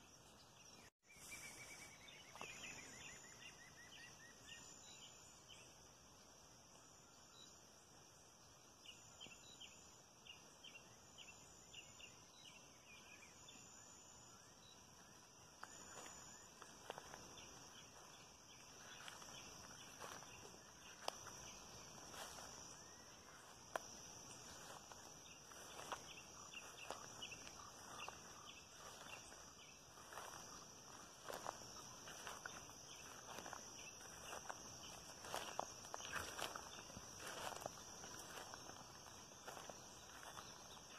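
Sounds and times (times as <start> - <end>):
insect chirps: 0.0 - 40.9
insects humming: 0.0 - 40.9
footsteps through vegetation: 1.2 - 3.2, 15.6 - 40.9
insect trills: 13.0 - 40.9.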